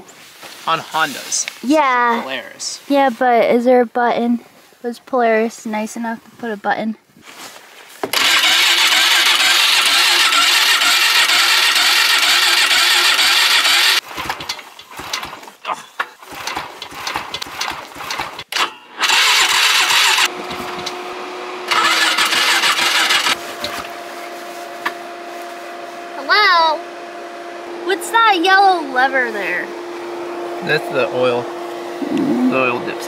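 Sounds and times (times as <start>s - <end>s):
engine cranking without catching: 8.1s - 21.0s, 21.7s - 24.0s
steady hum: 23.2s - 33.0s.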